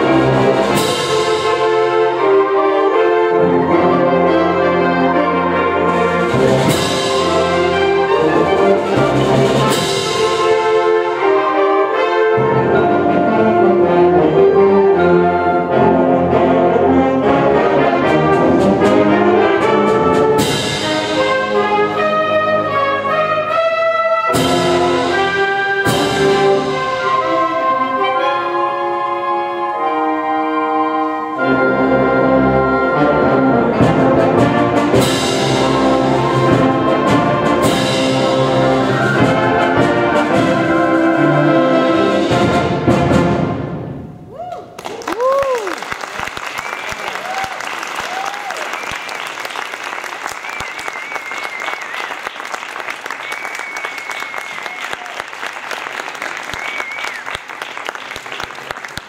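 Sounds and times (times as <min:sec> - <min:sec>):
concert band playing: 0:00.0 - 0:44.2, 0:46.6 - 0:59.0
loud percussion strikes: 0:20.1 - 0:21.6.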